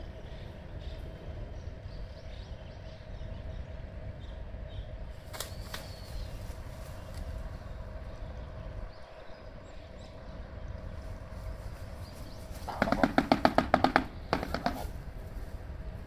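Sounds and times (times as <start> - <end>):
bird bill clattering: 12.5 - 15.0.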